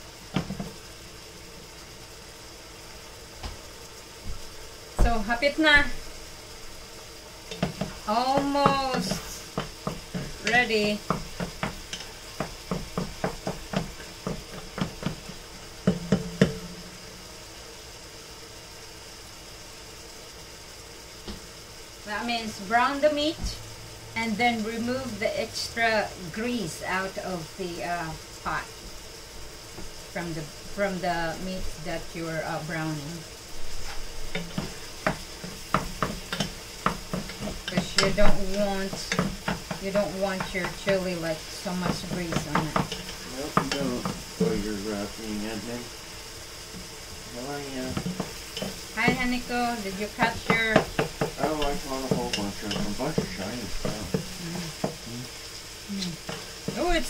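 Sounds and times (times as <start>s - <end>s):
faint sizzle: 0.0s - 57.0s
wooden spoon scraping a pot: 33.5s - 45.2s, 47.8s - 55.1s.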